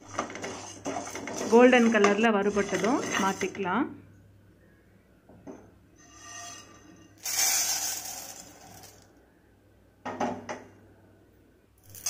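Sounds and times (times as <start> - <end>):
dry grains rattling onto plate: 7.2 - 9.1.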